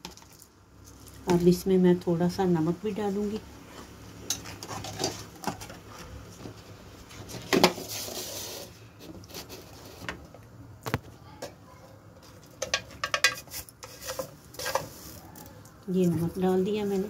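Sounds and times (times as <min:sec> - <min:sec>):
wooden spoon stirring in a wok: 0:12.1 - 0:17.0.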